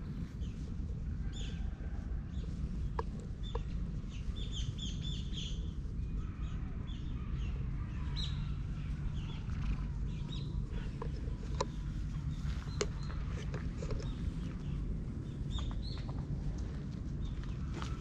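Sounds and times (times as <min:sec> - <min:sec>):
low steady rumble: 0:00.0 - 0:18.0
small birds chirping: 0:00.0 - 0:18.0.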